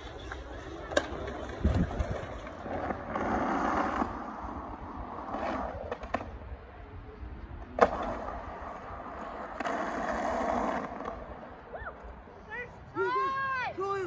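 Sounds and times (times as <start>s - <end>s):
sharp skateboard clack: 0.0s - 4.1s, 7.7s - 11.4s
skateboard wheels rolling on concrete: 0.0s - 14.0s.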